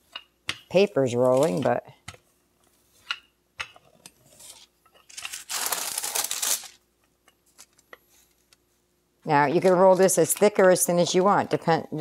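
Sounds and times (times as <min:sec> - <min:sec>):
parchment paper rustling: 0:01.0 - 0:01.8, 0:04.2 - 0:06.8, 0:09.4 - 0:11.3.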